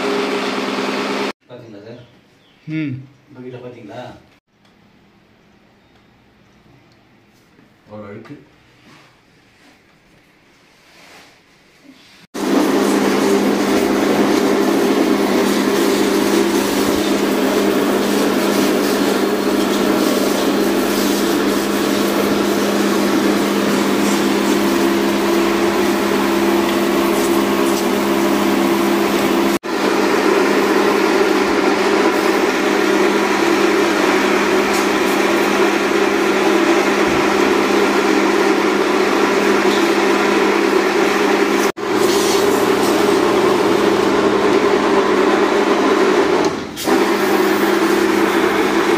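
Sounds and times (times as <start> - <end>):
pressure washer motor hum: 0.0 - 1.3, 12.4 - 48.9
water spray hissing: 12.4 - 29.6, 41.8 - 43.9.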